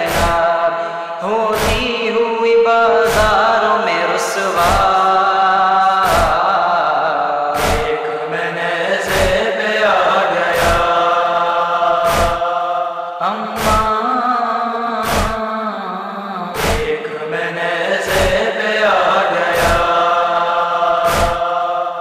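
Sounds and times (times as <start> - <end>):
chest-beating slaps: 0.0 - 0.5, 1.5 - 1.9, 3.0 - 3.5, 4.6 - 5.0, 6.0 - 6.4, 7.6 - 8.1, 9.1 - 9.4, 10.6 - 11.0, 11.9 - 12.6, 13.6 - 13.9, 15.0 - 15.4, 16.6 - 17.0, 18.1 - 18.4, 19.5 - 20.0, 20.9 - 21.6
male voices chanting: 0.0 - 22.0.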